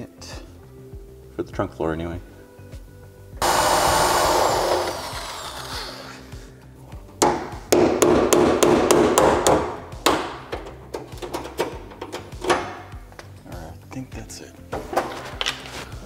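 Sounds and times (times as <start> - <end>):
sharp hammer strikes on chisel: 7.2 - 10.5.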